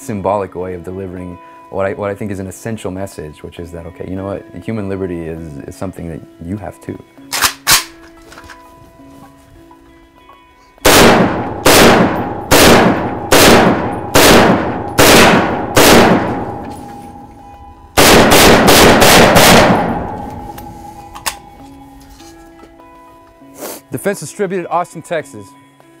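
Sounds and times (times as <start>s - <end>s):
rifle shots echoing: 10.8s - 17.2s, 18.0s - 21.4s.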